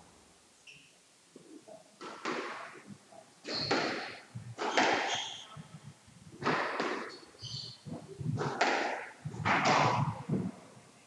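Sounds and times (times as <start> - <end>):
ball rebounding off walls: 2.0 - 2.8, 3.5 - 5.3, 6.4 - 7.2, 7.8 - 10.4
squash ball struck by rackets: 2.0 - 2.8, 3.4 - 5.4, 6.4 - 7.2, 7.9 - 10.2
shoes squeaking on court floor: 3.4 - 5.7, 6.6 - 8.7.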